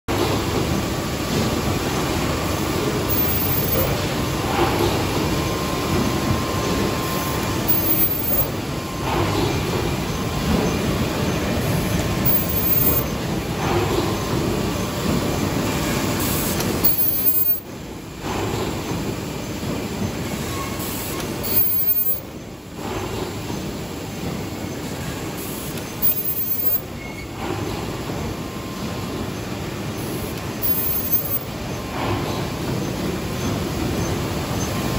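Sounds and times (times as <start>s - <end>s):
machine clattering: 0.1s - 34.9s
heavy machine stroke: 1.3s - 24.4s, 25.2s - 34.9s.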